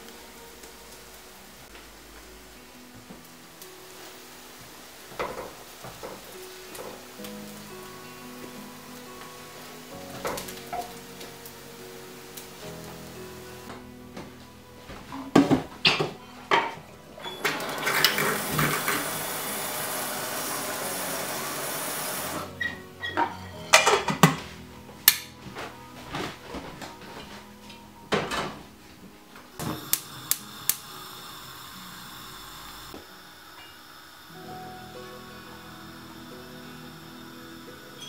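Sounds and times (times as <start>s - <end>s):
gas burner hissing: 0.0s - 26.2s, 28.2s - 38.0s
water running into kettle: 17.2s - 22.5s, 29.6s - 38.0s
gas igniter clicks: 25.1s - 25.3s, 29.6s - 31.2s.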